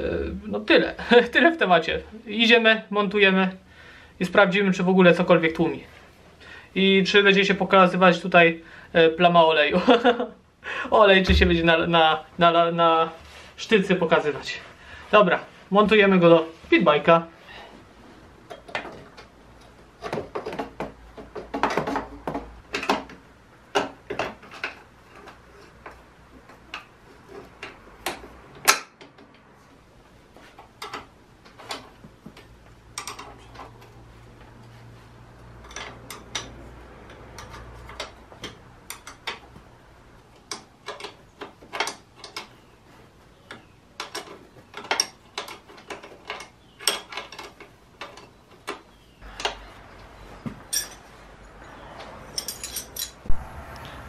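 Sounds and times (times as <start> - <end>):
sharp knock: 11.3 - 11.8
tools and bolts clinking: 32.9 - 34.0, 35.5 - 39.5, 40.3 - 42.6, 43.5 - 53.4.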